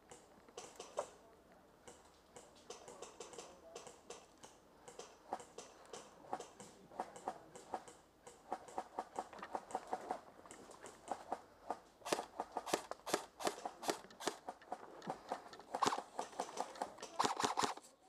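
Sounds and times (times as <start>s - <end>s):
airsoft gunfire snaps: 12.0s - 14.5s, 15.7s - 16.2s.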